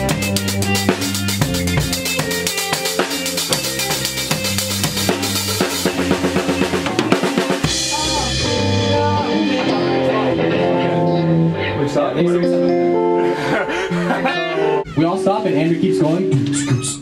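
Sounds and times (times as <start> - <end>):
electric bass: 0.0 - 15.8
drum kit: 0.0 - 17.0
electric guitar chords: 0.0 - 17.0.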